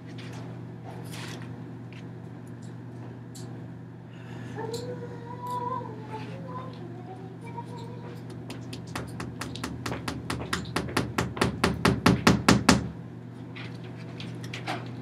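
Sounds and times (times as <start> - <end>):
hand knocking on papered wall: 8.8 - 13.0.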